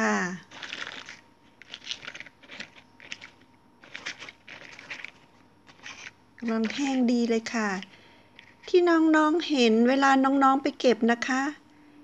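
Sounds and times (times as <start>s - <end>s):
dry mushrooms rustling and crinkling: 0.4s - 8.8s.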